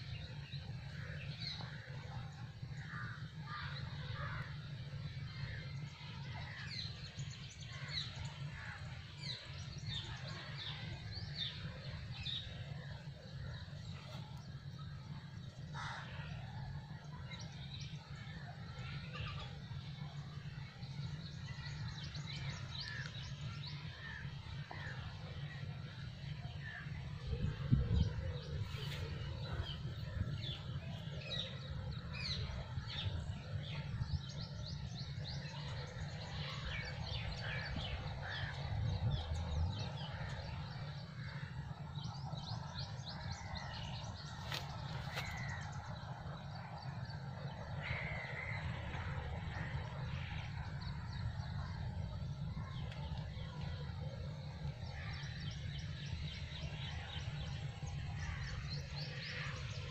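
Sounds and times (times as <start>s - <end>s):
birds chirping: 0.0s - 59.9s
steady low rumble: 0.0s - 59.9s.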